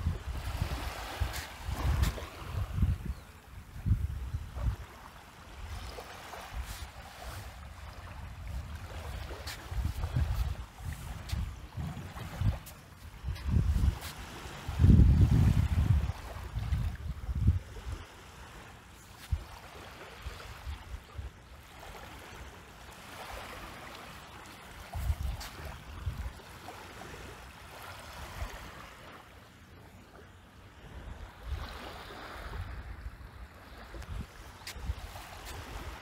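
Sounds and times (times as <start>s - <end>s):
sea water lapping: 0.0s - 2.9s, 4.6s - 36.0s
wind buffeting microphone: 0.0s - 4.9s, 8.1s - 18.0s, 24.8s - 26.4s, 34.0s - 36.0s.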